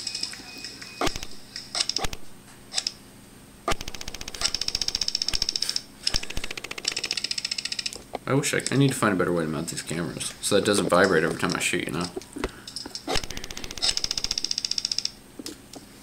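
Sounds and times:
airsoft rifle firing: 1.0 - 2.3, 3.7 - 7.3, 13.1 - 15.0.

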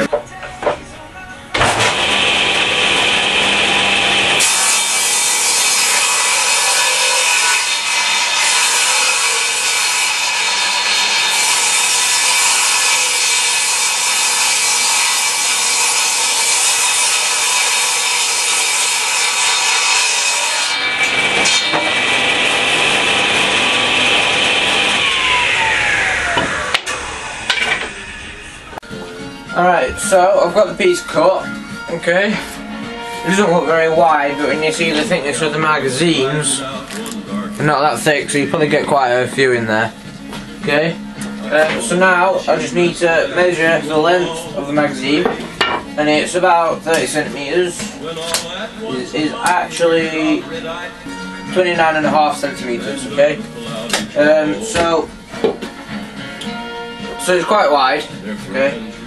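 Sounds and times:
table saw cutting wood: 1.6 - 28.9, 32.9 - 36.6.

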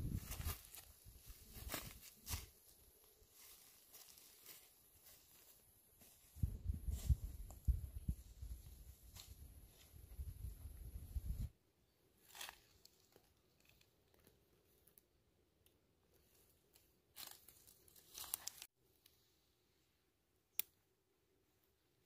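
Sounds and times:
dry leaves rustling: 0.0 - 6.2, 17.1 - 18.7.

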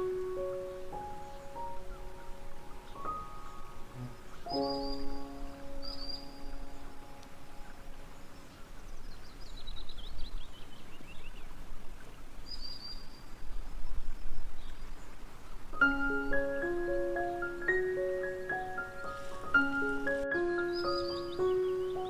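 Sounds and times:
background music: 0.0 - 8.5, 15.8 - 22.0
bird chirping: 0.0 - 22.0
steady background hiss: 0.0 - 22.0.

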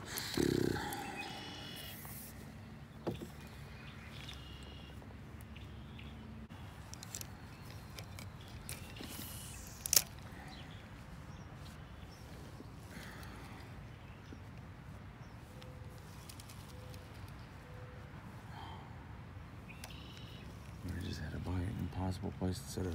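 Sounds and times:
faint bird chirps: 0.4 - 14.5, 19.6 - 22.1.

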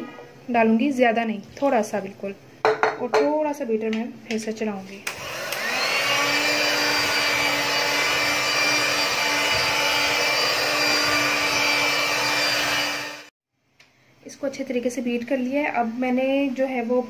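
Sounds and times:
electric hand mixer running: 5.1 - 13.3.

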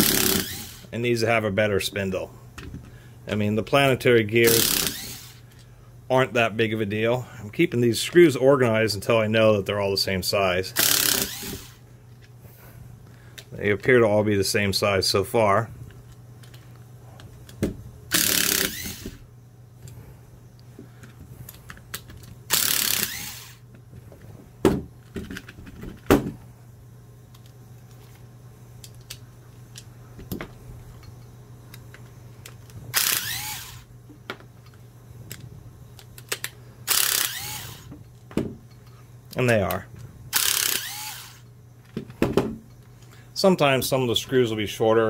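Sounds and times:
cordless screwdriver running: 0.0 - 0.9, 4.4 - 5.4, 10.8 - 11.8, 18.1 - 19.2, 22.5 - 23.6, 32.9 - 33.9, 36.9 - 37.9, 40.3 - 41.4
low steady hum: 0.0 - 45.0.

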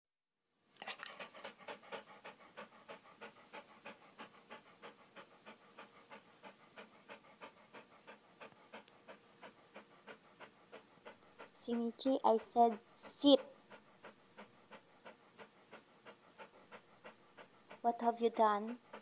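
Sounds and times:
dog panting: 0.8 - 19.0.

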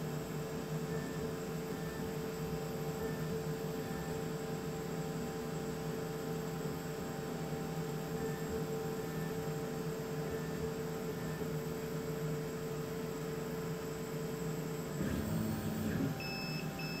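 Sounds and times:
laser cutter humming: 0.0 - 17.0
cutter head whirring: 14.9 - 17.0.

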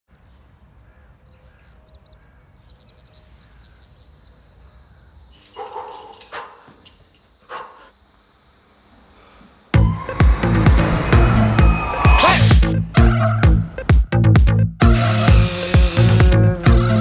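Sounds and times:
birds chirping: 0.1 - 14.2
high-pitched whistling tone: 7.8 - 13.4.

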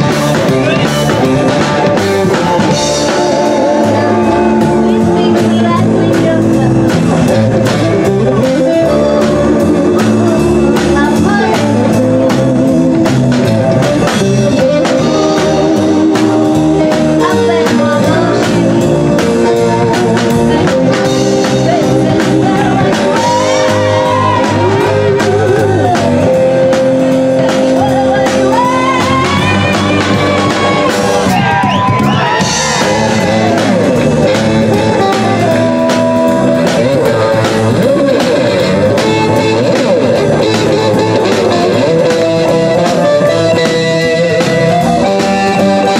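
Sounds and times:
drums: 0.0 - 45.9
electric guitar: 0.0 - 45.9
woman singing: 8.5 - 12.4, 14.6 - 26.1, 27.3 - 31.0.

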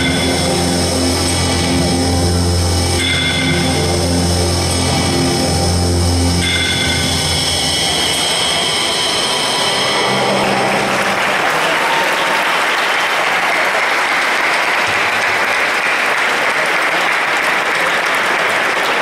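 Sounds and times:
crowd applauding: 7.8 - 19.0.

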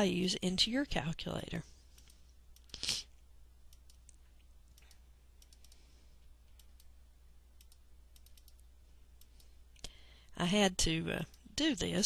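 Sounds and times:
low steady hum: 0.0 - 12.0
faint computer mouse clicks: 1.9 - 2.8, 3.7 - 5.9, 6.5 - 7.0, 7.6 - 10.0.

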